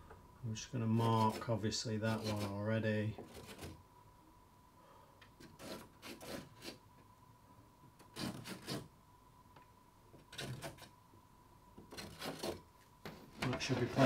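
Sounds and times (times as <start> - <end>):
pencil scratching on chipboard: 5.5 - 6.8, 8.1 - 8.9, 11.9 - 12.6.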